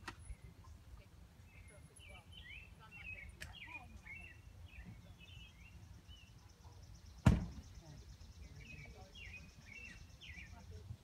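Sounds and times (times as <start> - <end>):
small birds chirping: 0.0 - 11.0
sharp thump: 7.2 - 7.7.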